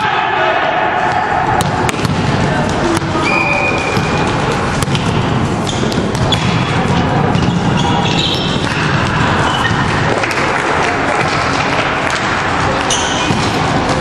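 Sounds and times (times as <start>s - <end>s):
echoing hall hubbub: 0.0s - 14.0s
volleyballs hit and bouncing: 1.0s - 14.0s
sneaker squeaks: 3.1s - 10.1s, 12.8s - 13.7s.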